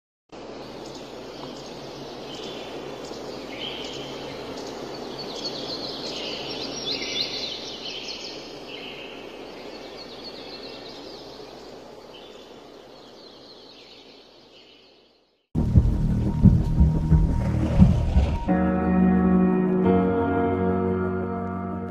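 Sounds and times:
steady background hiss: 0:00.4 - 0:15.4
bird calls: 0:00.7 - 0:15.4.

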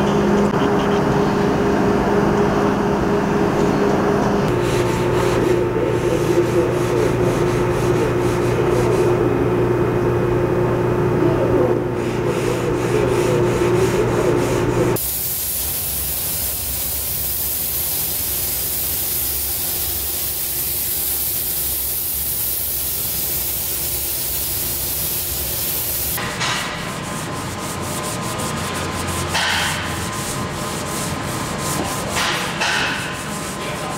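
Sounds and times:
abrasive pad scrubbing panel: 0:12.0 - 0:15.0, 0:22.6 - 0:33.9
paint spray gun hissing: 0:15.0 - 0:26.2
power tool humming: 0:15.0 - 0:26.2.

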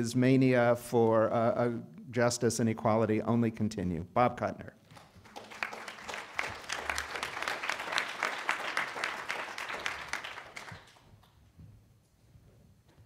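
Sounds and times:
audience applauding: 0:04.9 - 0:11.3.

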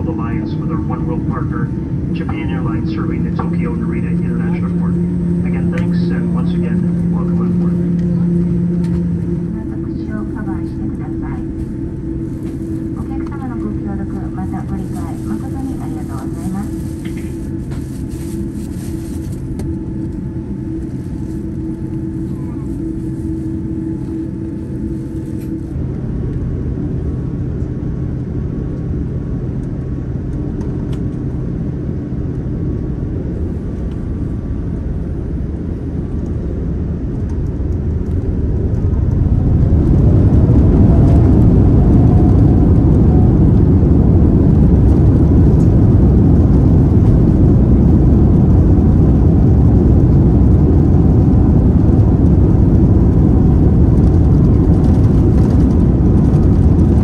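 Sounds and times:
engines spooling up whine: 0:00.0 - 0:13.9
jet engine hum in cabin: 0:00.0 - 0:57.0
loud takeoff roar: 0:00.0 - 0:57.0.

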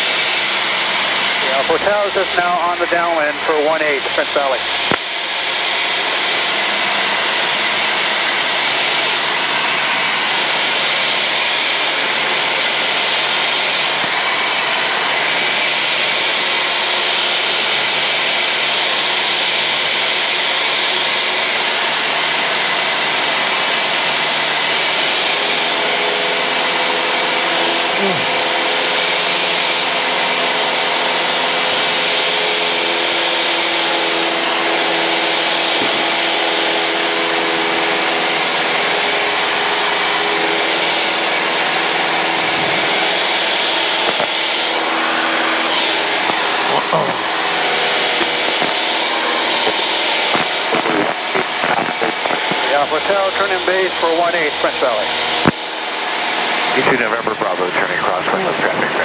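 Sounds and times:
rising and falling tone: 0:33.3 - 0:59.0
low steady tones: 0:40.4 - 0:59.0
aircraft cockpit engine hiss: 0:42.0 - 0:59.0.

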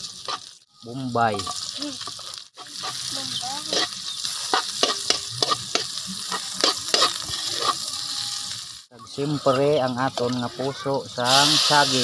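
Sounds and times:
food sizzling in hot oil: 0:00.0 - 0:12.0
metal spoon scraping wok: 0:01.4 - 0:08.8.

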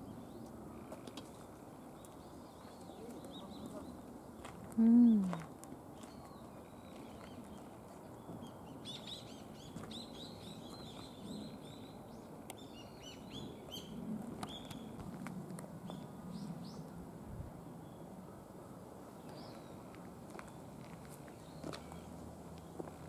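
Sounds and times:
small birds twittering: 0:00.0 - 0:05.2, 0:06.0 - 0:15.0, 0:19.2 - 0:22.9
faint outdoor background noise: 0:00.0 - 0:23.0.

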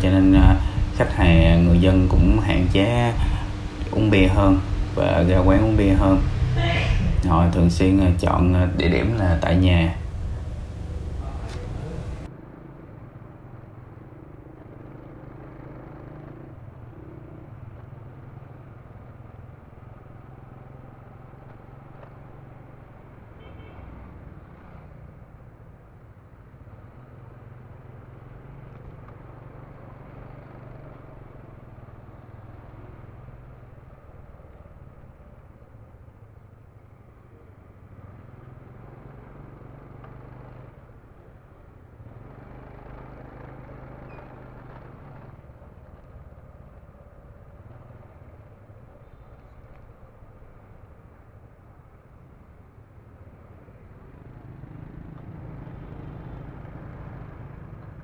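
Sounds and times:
low engine hum: 0:00.0 - 0:13.0
motorbikes and cars passing: 0:00.0 - 0:58.0.

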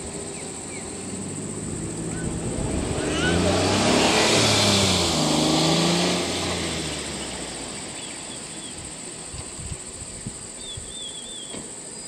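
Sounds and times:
vehicle engine slowing: 0:00.0 - 0:10.2
bird chirps: 0:07.2 - 0:09.6, 0:10.6 - 0:12.0.

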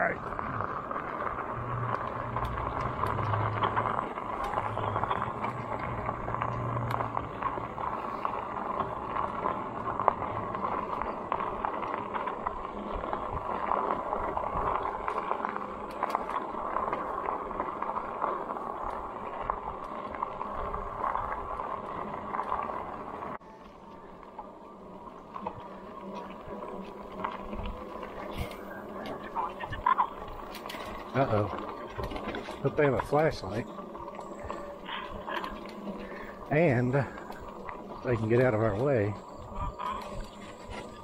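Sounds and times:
bike tyres rolling on gravel: 0:00.0 - 0:41.0
low hum: 0:00.0 - 0:41.0.

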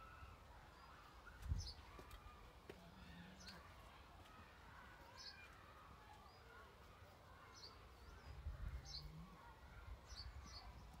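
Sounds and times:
birds chirping: 0:00.0 - 0:03.8, 0:07.3 - 0:11.0.

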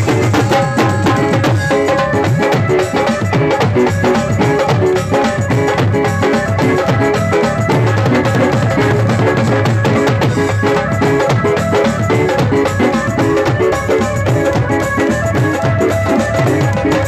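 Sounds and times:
electronic keyboard: 0:00.0 - 0:17.0
steady drum beat: 0:00.0 - 0:17.0.

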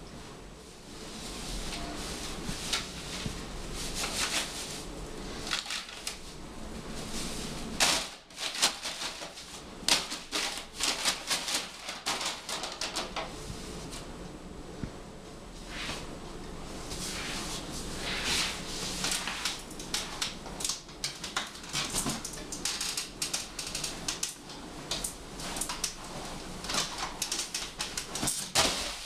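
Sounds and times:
paper bag crinkling: 0:01.7 - 0:13.9.

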